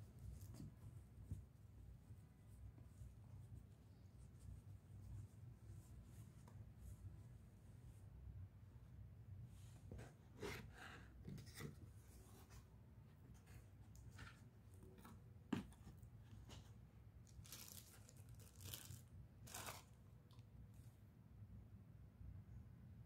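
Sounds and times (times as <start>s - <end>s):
plastic packaging crinkling: 17.2s - 20.0s.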